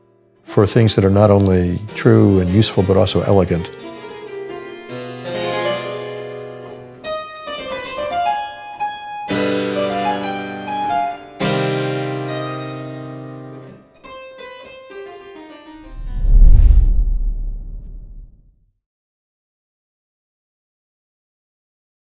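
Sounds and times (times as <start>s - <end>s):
deep low boom: 15.8s - 18.4s.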